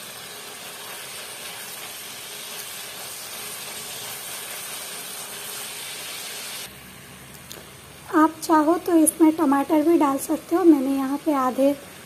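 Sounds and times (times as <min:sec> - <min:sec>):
spatula stirring in a pan: 0:00.0 - 0:06.7
food sizzling in oil: 0:00.0 - 0:06.8, 0:08.0 - 0:12.0.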